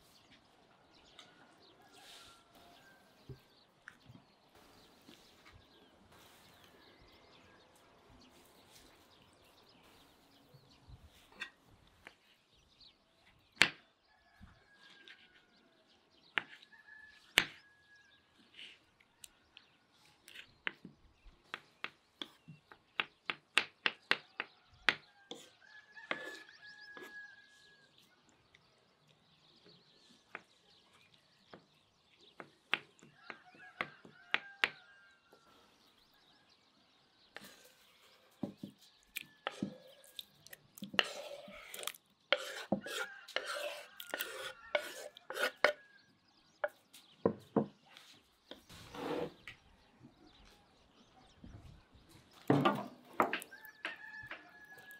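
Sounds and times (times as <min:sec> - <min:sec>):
knife chopping on wooden board: 0:40.9 - 0:45.8.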